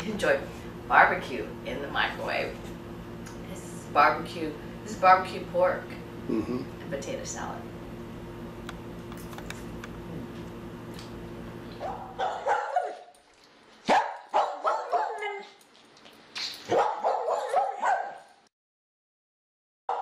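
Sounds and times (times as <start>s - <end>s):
steady low hum: 0.0s - 12.8s
dog barking and yipping: 11.8s - 13.2s, 13.8s - 15.6s, 16.6s - 18.4s.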